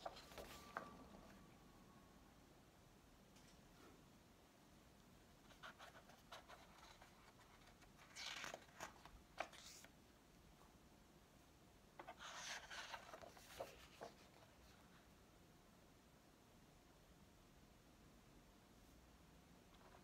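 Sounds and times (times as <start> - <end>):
book pages turning: 0.0 - 1.0, 5.5 - 9.9, 12.0 - 14.5.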